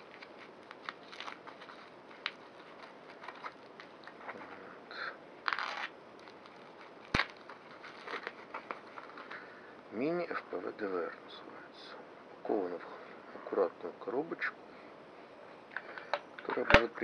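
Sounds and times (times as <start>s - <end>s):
plastic wrap crinkling: 0.0s - 4.5s, 5.4s - 9.5s.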